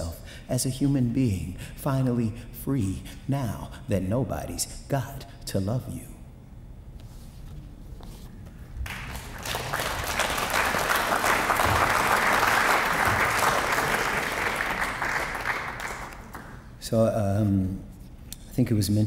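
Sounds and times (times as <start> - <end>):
audience applauding: 8.8 - 16.7.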